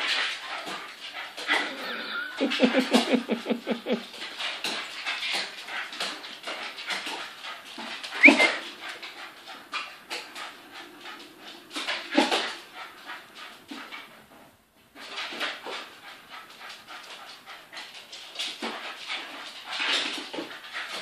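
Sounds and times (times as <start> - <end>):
small dog whimpering and yipping: 1.6 - 2.4, 8.2 - 8.6
dog yelp: 8.2 - 8.6.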